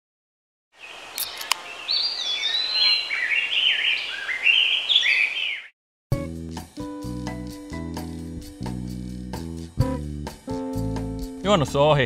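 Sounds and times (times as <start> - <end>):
bird chirping and whistling: 1.2 - 5.7.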